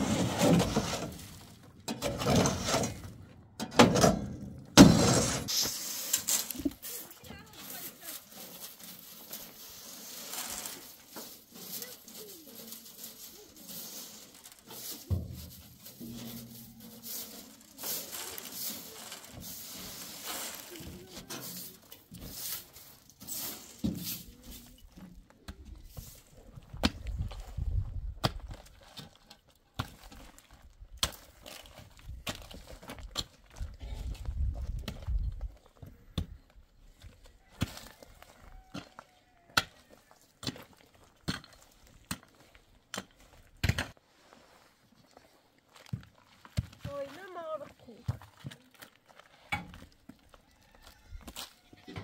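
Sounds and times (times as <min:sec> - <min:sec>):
broom scraping on steel: 0:00.0 - 0:03.2, 0:04.8 - 0:24.9.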